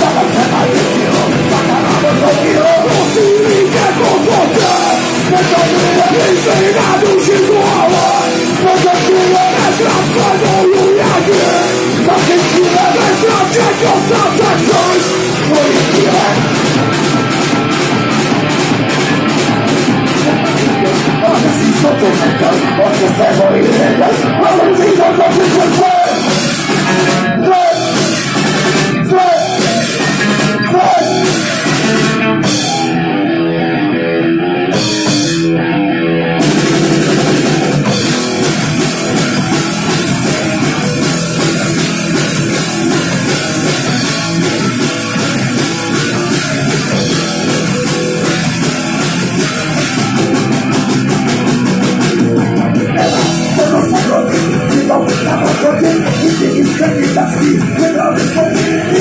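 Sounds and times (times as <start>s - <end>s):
man singing: 0.0s - 17.4s, 19.0s - 33.0s, 52.4s - 59.0s
drum kit: 0.0s - 33.1s, 34.6s - 35.6s, 36.3s - 59.0s
bass guitar: 0.0s - 59.0s
electric guitars: 0.0s - 59.0s.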